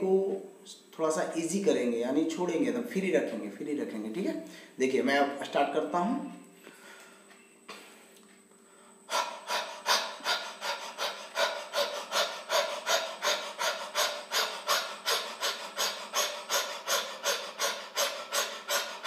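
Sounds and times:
man panting rapidly: 0:09.0 - 0:19.0.

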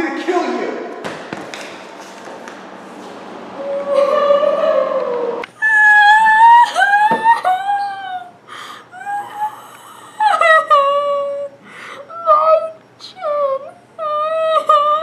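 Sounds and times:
boy crying: 0:03.6 - 0:15.0.

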